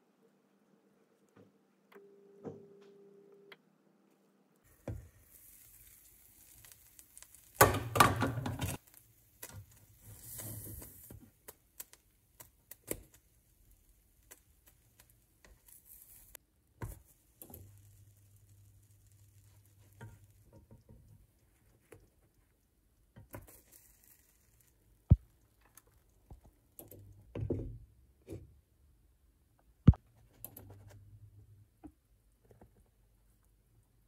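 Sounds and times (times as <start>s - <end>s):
faint high hiss: 4.7s - 7.8s.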